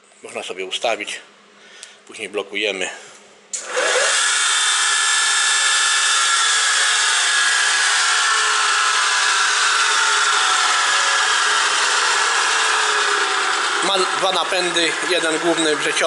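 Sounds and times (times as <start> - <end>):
grinder machine noise: 3.6 - 16.0
whining tones sinking in pitch: 5.4 - 15.5.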